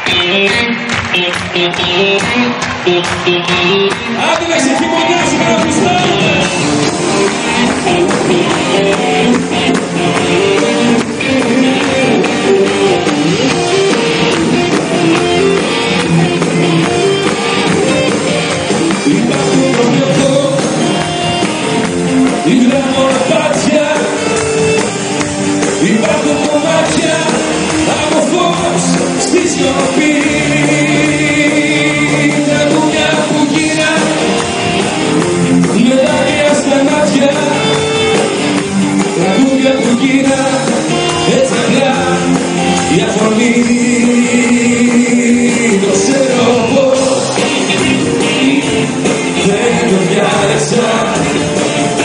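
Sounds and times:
live band playing pop: 0.0s - 52.0s
person singing: 0.0s - 52.0s.

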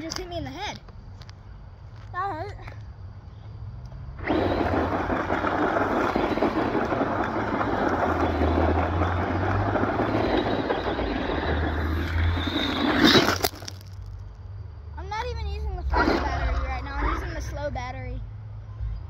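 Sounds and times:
rc truck driving over gravel: 3.8s - 14.4s, 15.0s - 17.5s
tyres throwing stones: 4.2s - 14.2s.

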